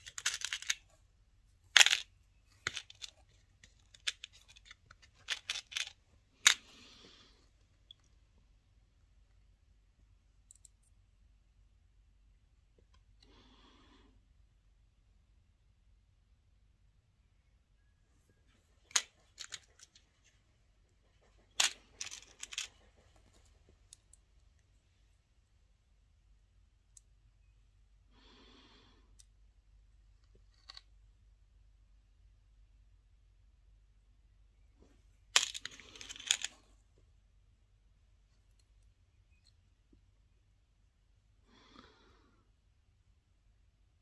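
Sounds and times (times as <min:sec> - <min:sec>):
metal charms clicking and rattling: 0:00.0 - 0:00.9, 0:01.8 - 0:06.8, 0:18.8 - 0:20.2, 0:21.3 - 0:23.2, 0:35.4 - 0:36.6.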